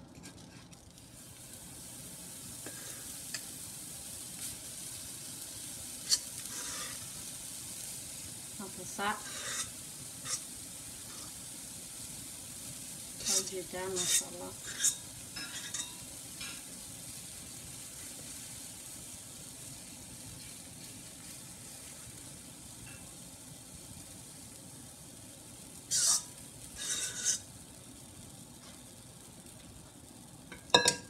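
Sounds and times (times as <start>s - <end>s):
batter sizzling in a frying pan: 0.0s - 31.0s
spatula scraping a pan: 6.0s - 7.2s, 9.1s - 11.4s, 13.2s - 16.6s, 25.9s - 27.5s.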